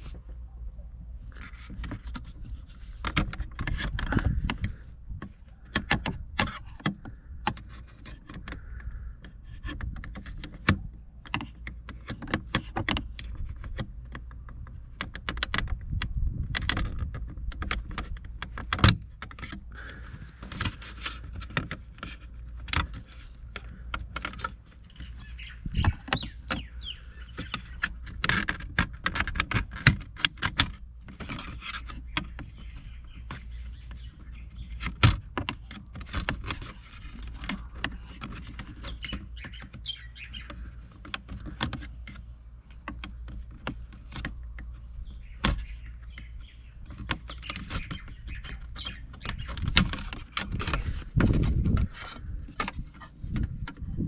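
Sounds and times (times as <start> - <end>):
birds chirping: 19.4 - 28.6, 31.1 - 54.0.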